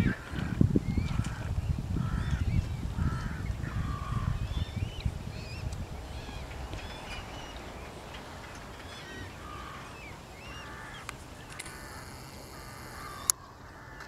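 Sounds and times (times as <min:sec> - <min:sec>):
waterfowl calling: 0:06.1 - 0:14.0.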